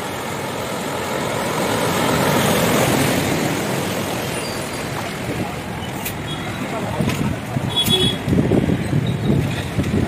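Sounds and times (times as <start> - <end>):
car splashing through water: 0.0 - 5.9.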